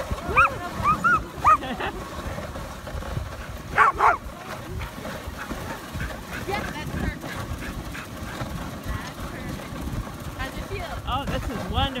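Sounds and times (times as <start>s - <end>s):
dogs yipping: 0.3s - 1.7s, 3.7s - 4.3s
dogs barking: 0.3s - 1.8s, 3.7s - 4.3s.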